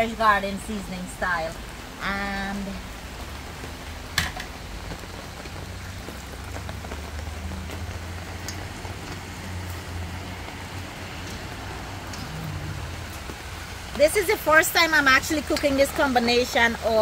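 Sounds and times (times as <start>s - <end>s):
rain on fabric canopy: 0.0s - 17.0s.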